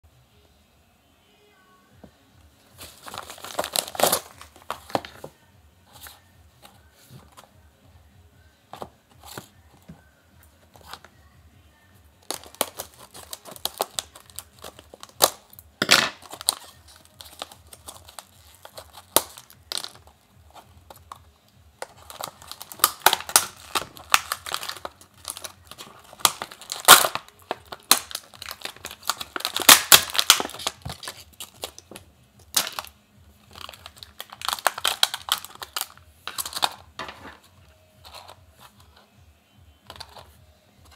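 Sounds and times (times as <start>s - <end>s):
envelope tearing: 2.8s - 5.0s, 16.2s - 20.0s, 22.0s - 31.8s
plastic packaging crinkling: 2.8s - 5.2s, 12.2s - 21.1s, 21.8s - 32.9s, 33.5s - 37.4s.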